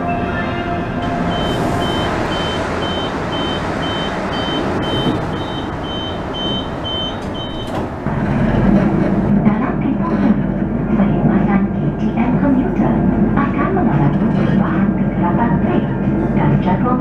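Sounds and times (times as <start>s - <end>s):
train humming: 0.0s - 17.0s
sliding doors opening and closing: 0.4s - 9.4s
door warning beeps: 1.3s - 7.8s.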